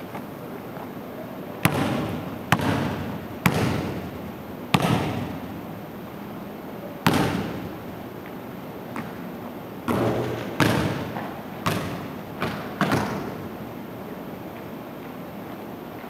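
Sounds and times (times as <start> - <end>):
basketball bouncing on hardwood floor: 1.6 - 5.5, 7.0 - 7.7, 9.9 - 13.4.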